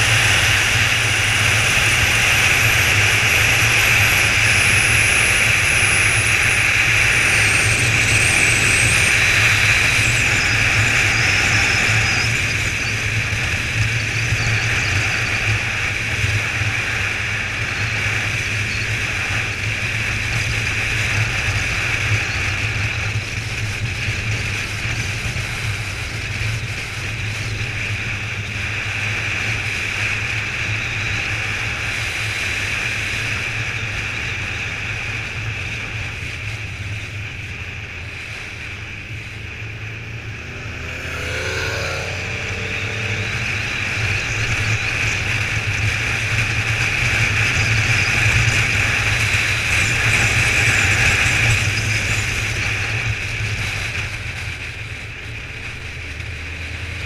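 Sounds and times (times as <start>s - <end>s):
motorcycle engine running: 0.0s - 57.0s
riding wind rushing: 37.6s - 51.6s.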